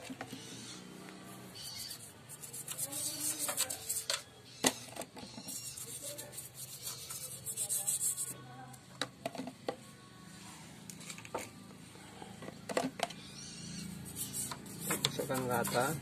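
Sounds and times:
stiff brush scrubbing metal: 1.6s - 4.1s, 5.5s - 8.4s, 13.7s - 16.0s.

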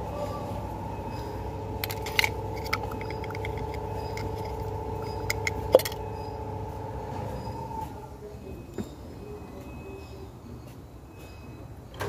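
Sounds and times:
steady hum with held tones: 0.0s - 11.1s
metal tool clicks and clinks: 1.8s - 6.0s.

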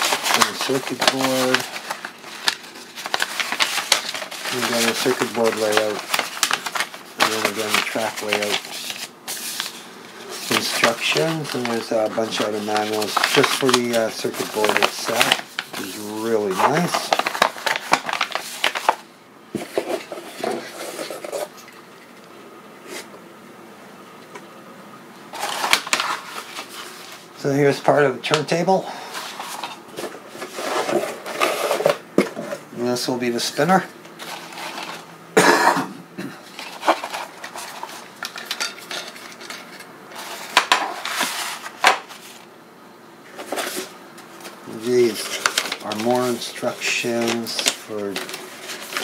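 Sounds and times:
paper booklets rustling on tile: 0.0s - 19.0s, 25.3s - 27.3s, 29.0s - 32.0s, 33.7s - 35.1s, 36.4s - 42.5s, 43.3s - 49.0s.

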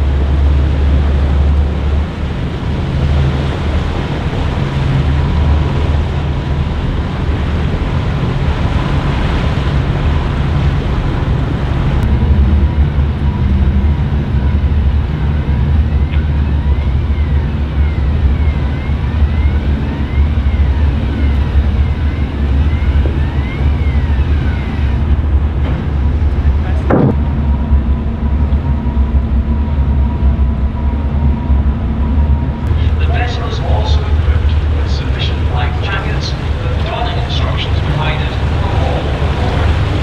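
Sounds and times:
ship engines deep rumble: 0.0s - 40.0s
wind on microphone: 0.0s - 40.0s
sliding warning tone: 12.0s - 40.0s.

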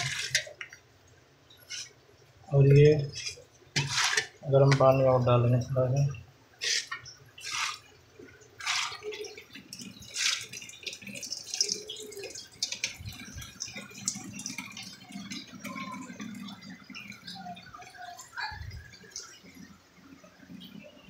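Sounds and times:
water splashing and dripping: 0.0s - 21.0s.

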